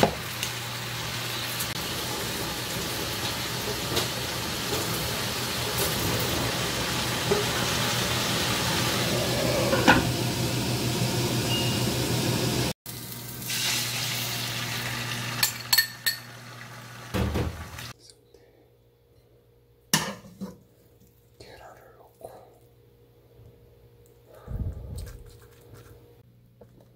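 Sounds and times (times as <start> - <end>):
vegetables sizzling in a pan: 0.0 - 17.9
utensils clinking against a pan: 15.4 - 16.4.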